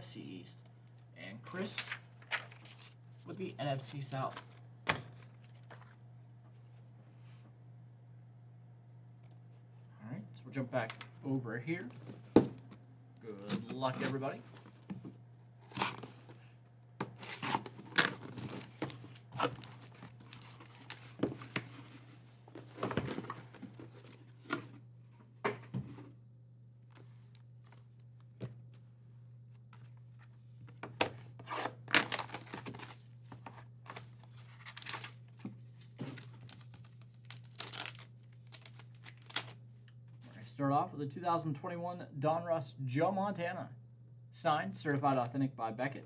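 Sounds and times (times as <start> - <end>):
wrapping crinkling: 1.8 - 3.0, 36.1 - 39.6
cardboard ripping: 15.6 - 16.1, 17.2 - 21.0.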